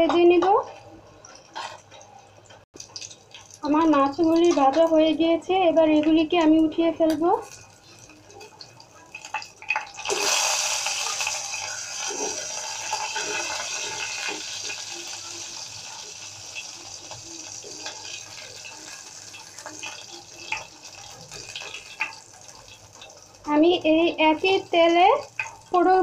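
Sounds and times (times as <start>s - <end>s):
oil sizzling in a frying pan: 0.0s - 26.0s
spatula scraping pan: 1.5s - 2.0s.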